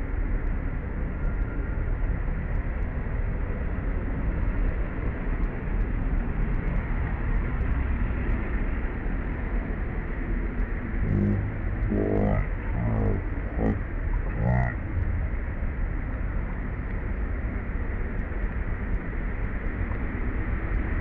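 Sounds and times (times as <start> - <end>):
low rumbling background noise: 0.0 - 21.0
low-pitched animal calls: 11.0 - 15.1.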